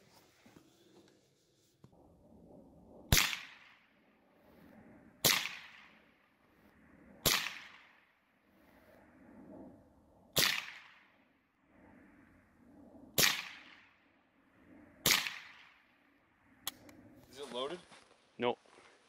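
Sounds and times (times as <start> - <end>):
rifle shots: 3.1 - 3.8, 5.2 - 6.0, 7.2 - 8.0, 10.4 - 11.1, 13.2 - 13.9, 15.0 - 15.8.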